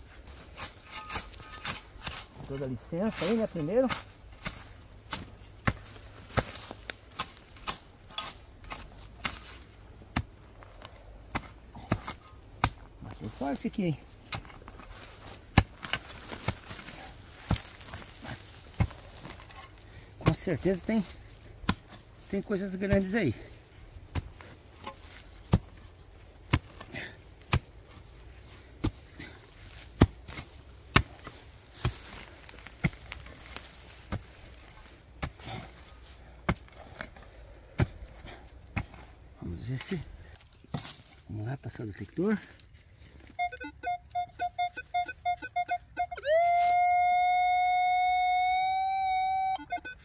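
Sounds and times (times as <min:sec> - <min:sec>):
digging tool chopping into soil: 0:00.4 - 0:13.6, 0:14.2 - 0:19.6, 0:20.2 - 0:23.2, 0:24.0 - 0:28.2, 0:28.8 - 0:41.2.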